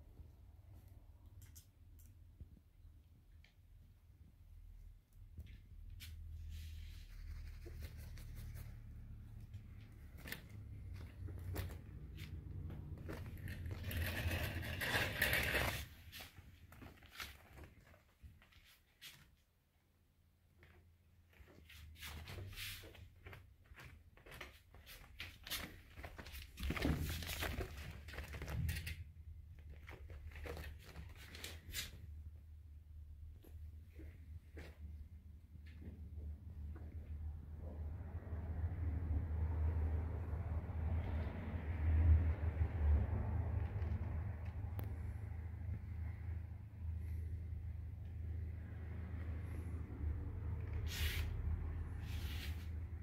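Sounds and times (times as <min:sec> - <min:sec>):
claws scratching curtain fabric: 0:06.0 - 0:17.8, 0:50.7 - 0:52.9.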